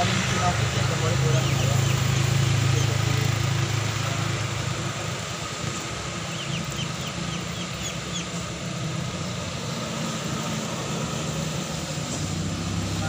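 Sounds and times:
road noise: 0.0s - 13.0s
truck engine climbing: 0.0s - 13.0s
bird chirping: 0.5s - 3.6s, 5.7s - 8.5s.

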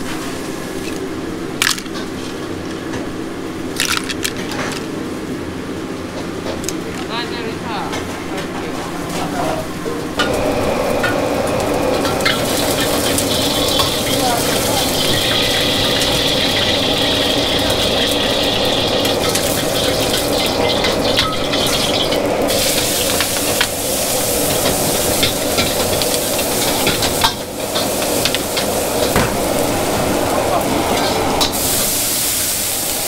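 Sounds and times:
steady hiss: 22.5s - 33.0s.

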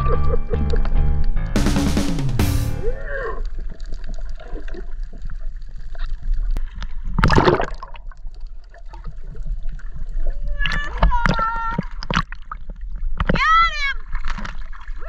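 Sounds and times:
background music: 0.0s - 3.1s
water gurgling underwater: 2.9s - 13.4s.

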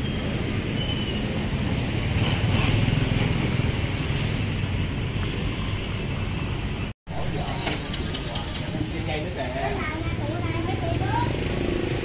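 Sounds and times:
passing cars and motorbikes: 0.0s - 12.0s.

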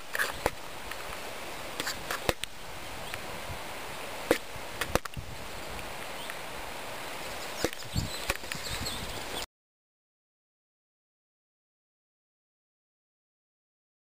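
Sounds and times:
outdoor hiss: 0.0s - 9.5s.

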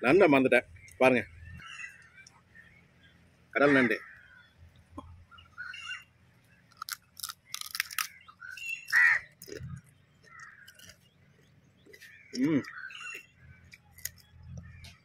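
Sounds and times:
crow cawing: 1.6s - 2.2s, 3.6s - 4.5s, 7.6s - 9.5s, 10.2s - 11.0s
crab shell crunching when chewed: 6.7s - 15.0s.

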